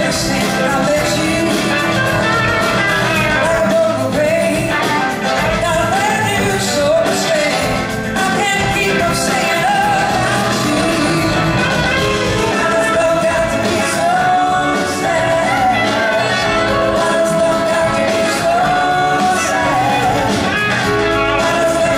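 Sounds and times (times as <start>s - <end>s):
blues-rock band playing: 0.0s - 21.9s.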